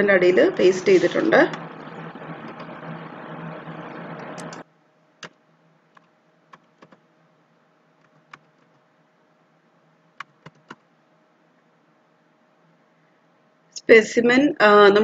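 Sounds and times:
computer keyboard keystrokes: 0:05.2 - 0:07.0, 0:08.0 - 0:08.8, 0:10.2 - 0:10.8.

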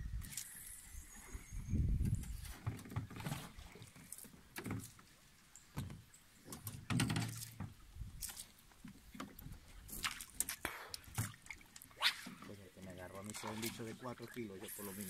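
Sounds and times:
knocks and bumps in boat: 0:02.0 - 0:03.7, 0:05.7 - 0:07.8.

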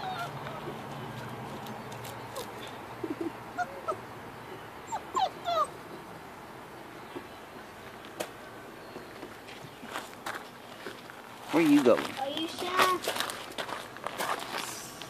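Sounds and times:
puppies whimpering: 0:00.0 - 0:01.0, 0:02.3 - 0:06.0.

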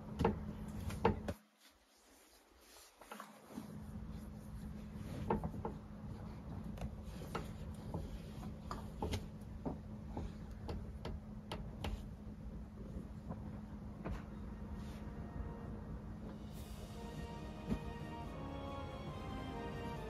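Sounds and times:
sleeping bag rustling: 0:00.7 - 0:05.3
low hum: 0:12.3 - 0:20.0.

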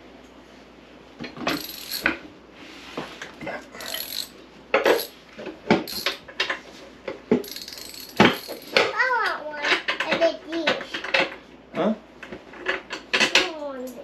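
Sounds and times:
metal parts clinking and scraping: 0:01.5 - 0:02.2, 0:03.8 - 0:05.2, 0:05.8 - 0:06.3, 0:07.4 - 0:08.9.

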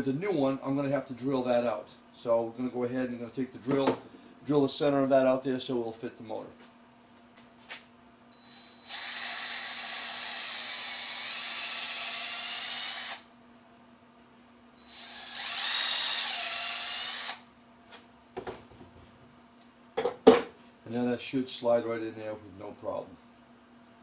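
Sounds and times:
cordless drill drilling: 0:08.4 - 0:13.2, 0:14.9 - 0:17.4.

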